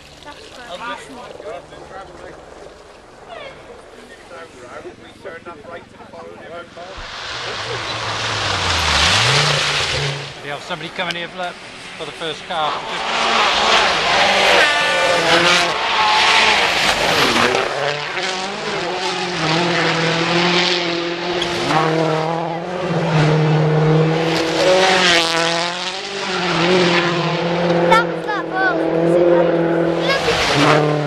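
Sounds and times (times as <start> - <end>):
rally car engine revving: 0.2 - 31.0
gravel spraying from tyres: 6.9 - 12.2.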